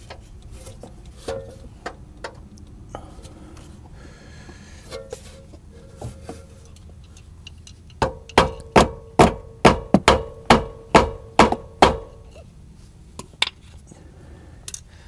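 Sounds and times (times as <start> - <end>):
hammer striking metal: 8.0 - 12.3.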